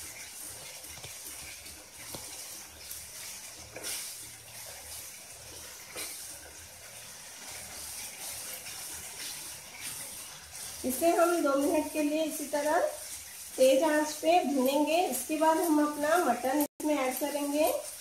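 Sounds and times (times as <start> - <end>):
masala sizzling in a pan: 0.0 - 18.0.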